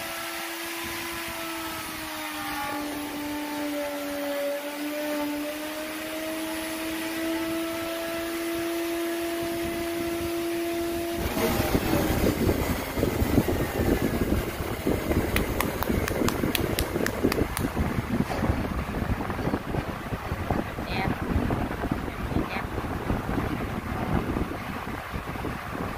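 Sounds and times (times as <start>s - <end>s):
electric router whining: 0.0s - 18.8s.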